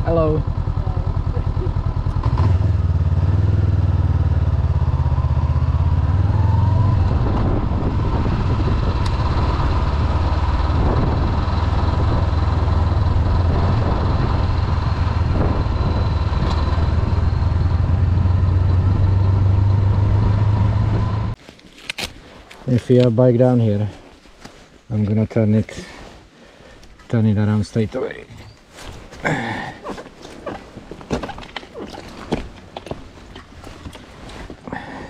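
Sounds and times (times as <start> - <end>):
motorcycle engine running: 0.0 - 21.4.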